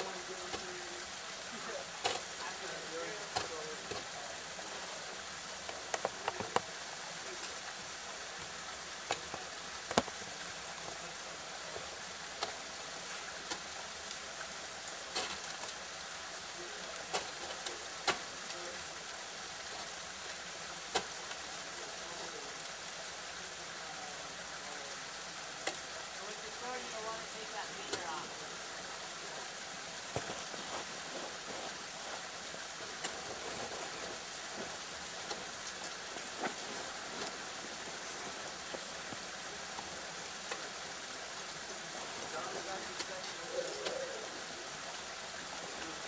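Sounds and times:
steady hiss: 0.0s - 46.0s.

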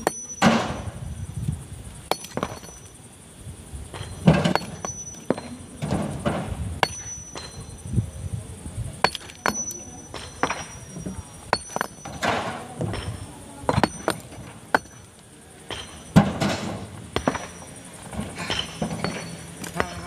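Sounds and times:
hammer striking steel chisel: 0.0s - 0.8s, 2.1s - 2.9s, 4.0s - 5.7s, 6.8s - 7.8s, 9.0s - 15.1s, 15.7s - 17.8s.

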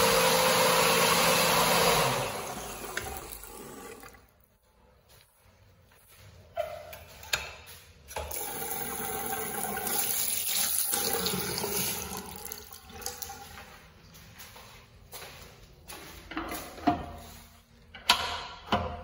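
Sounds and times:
toilet flush water rushing: 0.0s - 4.2s, 8.3s - 13.4s.

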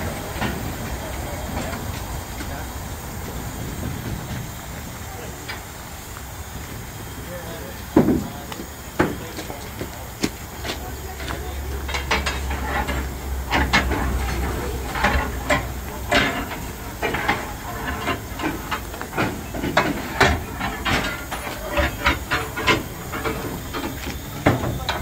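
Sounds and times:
steam locomotive hissing: 0.0s - 25.0s
metal knocks and clanks: 10.6s - 25.0s.

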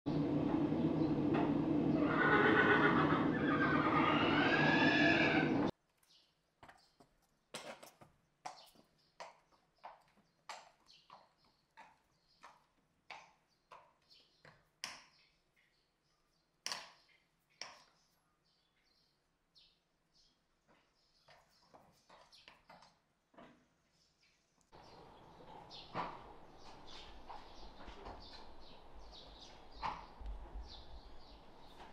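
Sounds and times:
horse whinnying: 2.0s - 5.7s.

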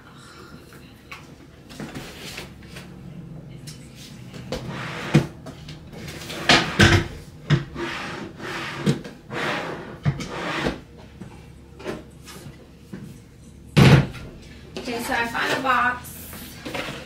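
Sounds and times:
rustling of shifted items: 0.8s - 17.0s
knocks and thumps of rummaging: 4.4s - 7.8s, 13.8s - 15.8s.

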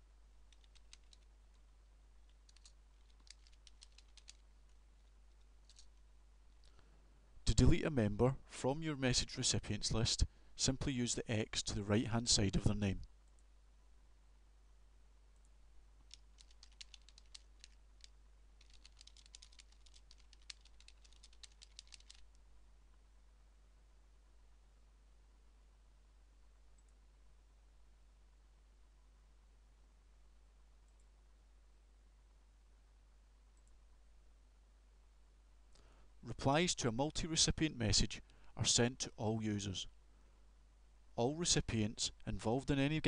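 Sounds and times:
computer keyboard typing: 0.5s - 1.3s, 2.4s - 6.0s, 16.1s - 22.3s.

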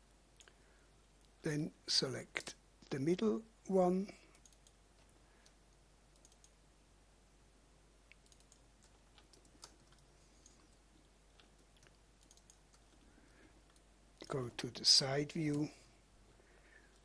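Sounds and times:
computer mouse clicks: 4.3s - 6.6s, 8.1s - 13.0s, 13.6s - 13.9s.

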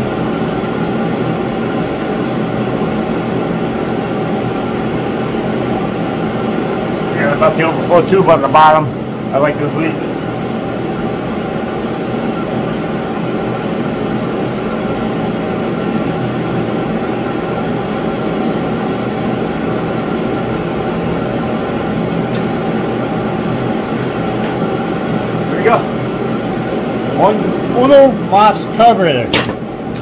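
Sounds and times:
gas heater rushing noise: 0.0s - 30.0s.

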